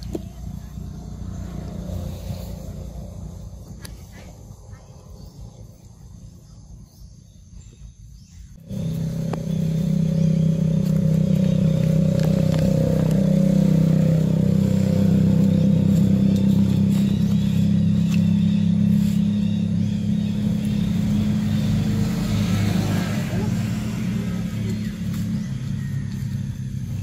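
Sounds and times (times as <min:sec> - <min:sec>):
motor engine humming: 0:00.0 - 0:06.7, 0:08.4 - 0:27.0.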